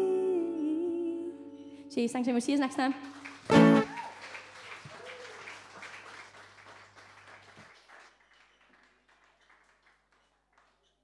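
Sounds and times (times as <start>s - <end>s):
audience applause: 2.9s - 10.9s.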